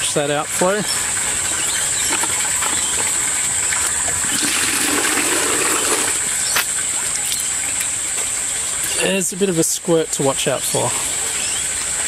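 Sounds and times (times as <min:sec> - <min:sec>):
water splashing onto gravel: 0:00.0 - 0:09.2.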